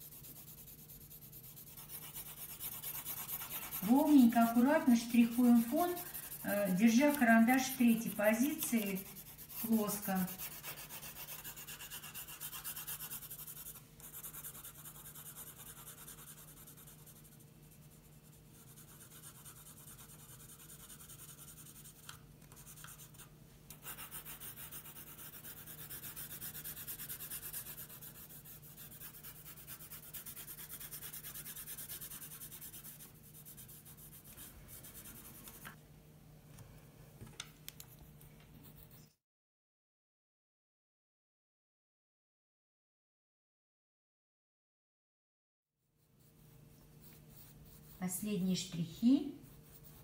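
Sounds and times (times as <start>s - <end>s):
pencil shading paper: 0.0s - 35.6s, 38.6s - 39.1s, 46.0s - 50.0s.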